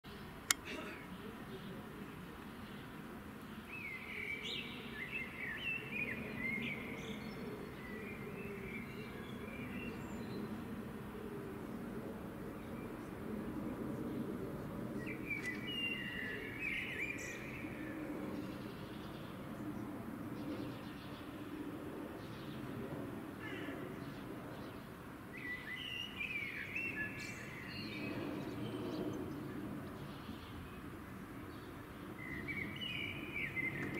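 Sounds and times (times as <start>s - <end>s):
songbird singing whistled notes: 32.2s - 33.9s.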